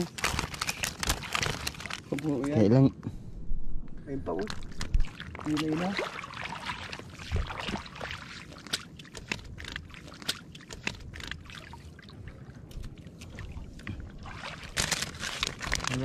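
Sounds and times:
water sloshing around wading legs: 4.4s - 16.0s.

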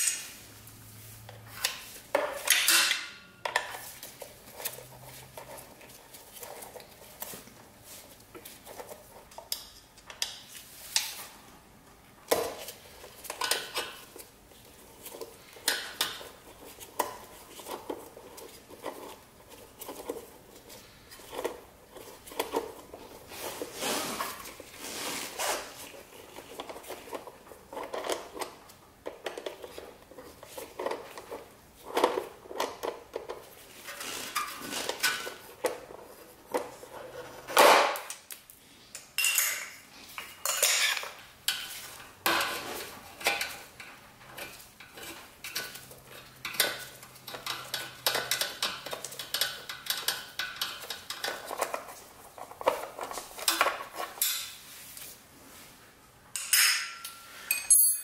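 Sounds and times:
metallic clinks of hex key and bolts: 56.4s - 58.0s.

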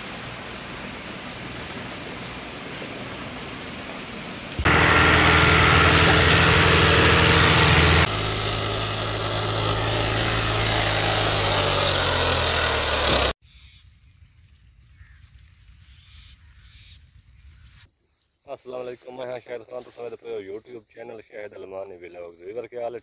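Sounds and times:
diesel tractor engines under load: 4.5s - 13.4s
tractor pulling away: 4.5s - 13.4s.

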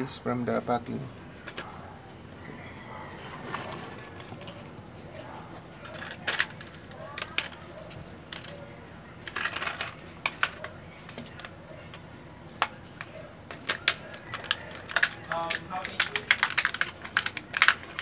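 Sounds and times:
plastic packaging crackling: 9.2s - 11.5s, 13.5s - 18.0s.

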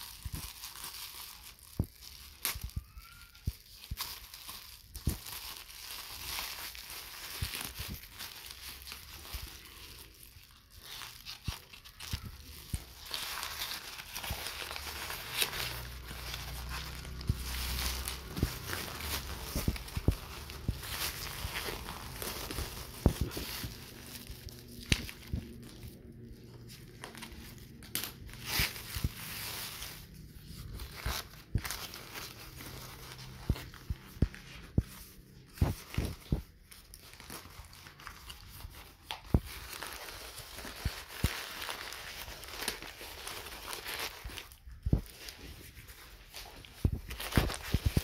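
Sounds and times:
plastic bag crinkling and tearing: 0.0s - 48.0s.

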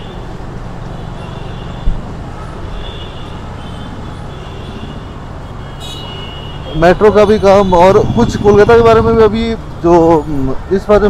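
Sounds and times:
road and wind noise: 0.0s - 11.0s
motorcycle engine running: 7.8s - 9.6s.

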